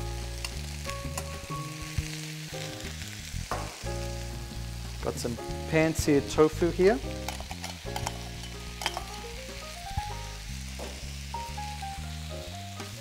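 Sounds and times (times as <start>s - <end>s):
slow background music: 0.0s - 13.0s
vegetables sizzling in oil: 0.0s - 13.0s
metal tongs clinking on bowl: 7.2s - 9.2s.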